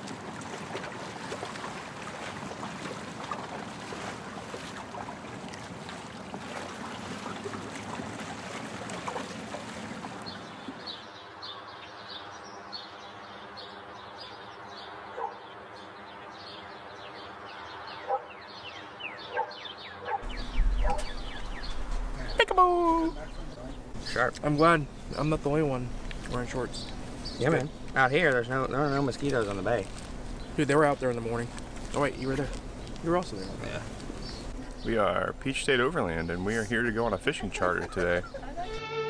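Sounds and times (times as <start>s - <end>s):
water wash: 0.0s - 11.0s, 20.2s - 38.8s
small birds chirping: 9.1s - 38.7s
wind noise: 20.2s - 23.5s
low hum: 20.2s - 28.0s.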